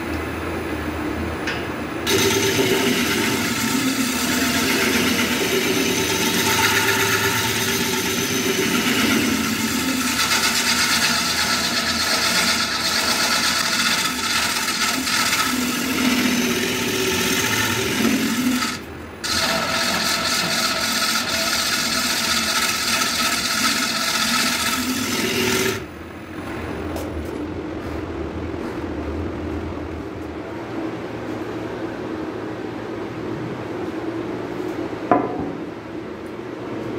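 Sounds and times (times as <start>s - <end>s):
lathe humming: 2.0s - 25.9s
turning tool scraping wood on lathe: 2.1s - 25.9s.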